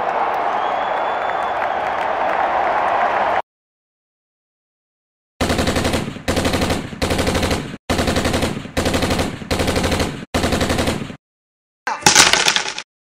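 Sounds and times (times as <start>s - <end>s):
machine-gun fire bursts: 5.4s - 11.2s.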